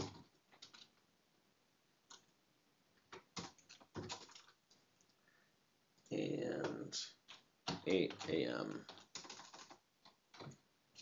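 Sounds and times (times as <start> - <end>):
computer keyboard keystrokes: 3.1 - 4.6, 6.6 - 11.0.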